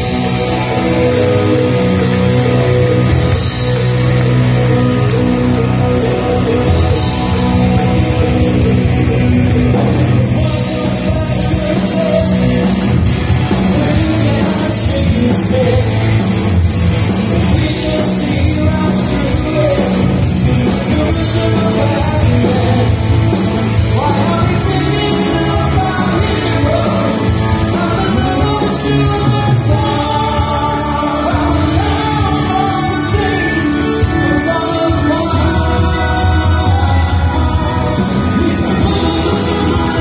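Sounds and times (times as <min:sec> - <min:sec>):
rock band playing live: 0:00.0 - 0:40.0
lead singer singing: 0:02.8 - 0:16.4, 0:17.2 - 0:40.0.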